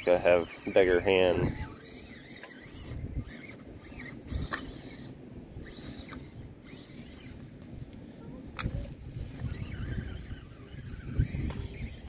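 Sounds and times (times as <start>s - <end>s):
small motor and gears whining: 0.0s - 12.0s.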